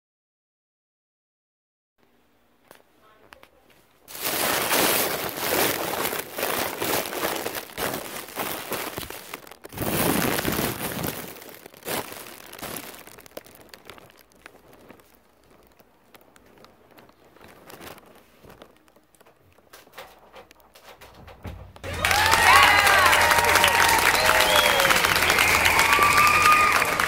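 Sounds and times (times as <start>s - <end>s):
rustling and crinkling: 2.6s - 23.2s.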